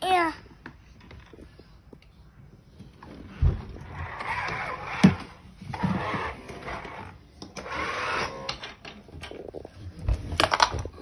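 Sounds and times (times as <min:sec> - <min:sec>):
toy excavator whirring and rattling: 0:03.8 - 0:09.6.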